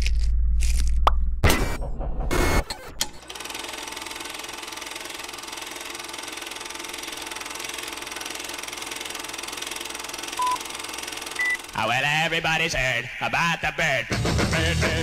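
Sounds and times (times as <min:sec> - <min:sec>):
film projector clatter: 0:03.0 - 0:11.8
short beep: 0:11.4 - 0:11.6.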